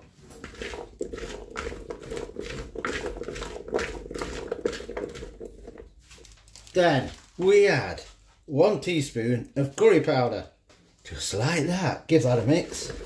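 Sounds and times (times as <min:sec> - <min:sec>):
fork scraping a plastic bowl: 0:00.0 - 0:06.3, 0:12.1 - 0:13.0
potato cubes clattering: 0:00.3 - 0:07.4, 0:12.1 - 0:13.0.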